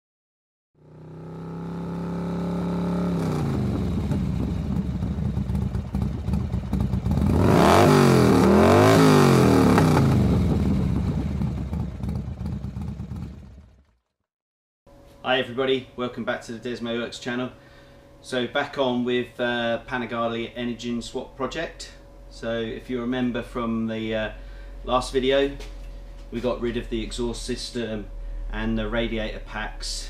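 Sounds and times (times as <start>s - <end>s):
motorcycle engine revving: 0.8s - 14.1s.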